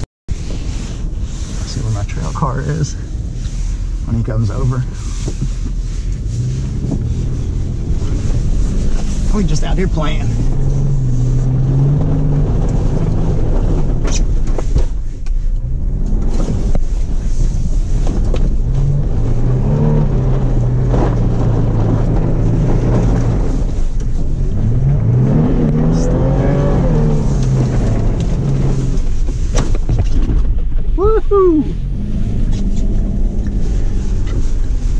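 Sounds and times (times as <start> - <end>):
truck engine revving: 6.0 - 14.5, 17.7 - 29.3.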